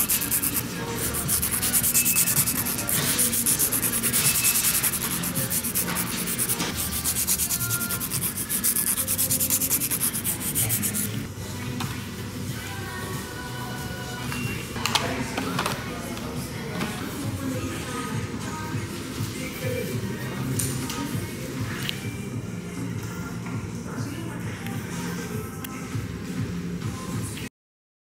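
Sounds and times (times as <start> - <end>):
nail file rasping on nails: 0.0 - 11.3.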